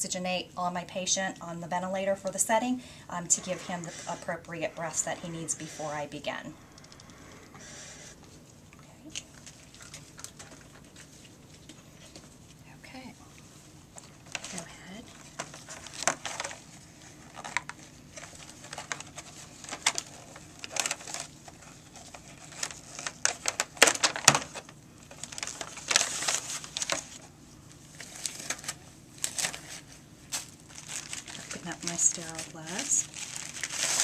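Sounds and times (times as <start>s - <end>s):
packaging crinkling: 9.1s - 12.4s, 14.0s - 34.0s.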